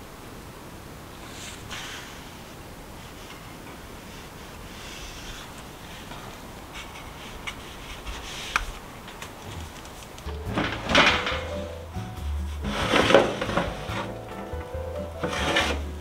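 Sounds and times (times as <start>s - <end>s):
quiet scraping: 1.2s - 16.0s
faint clicks: 6.8s - 10.4s
oven door clunk and rattle: 10.3s - 11.9s.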